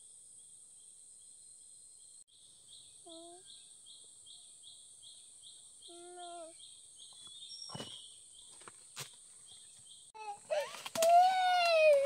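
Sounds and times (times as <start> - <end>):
dry leaves and twigs crackling: 7.1 - 12.0
child whimpering: 10.2 - 12.0.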